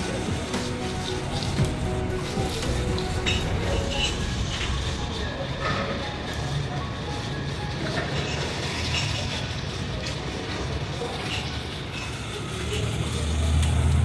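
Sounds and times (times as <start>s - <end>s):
low engine rumble: 12.9s - 14.0s.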